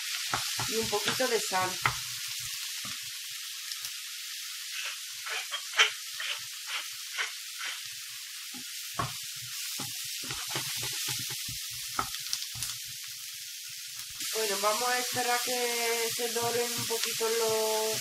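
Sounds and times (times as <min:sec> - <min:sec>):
vegetables sizzling in a pan: 0:00.0 - 0:18.0
wooden spoon scraping a pan: 0:04.8 - 0:08.0, 0:09.8 - 0:11.6.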